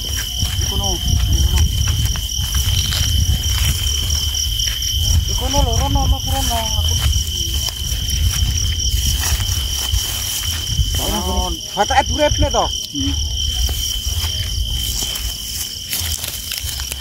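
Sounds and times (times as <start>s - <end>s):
continuous low rumble: 0.0s - 11.7s
insects trilling: 0.0s - 17.0s.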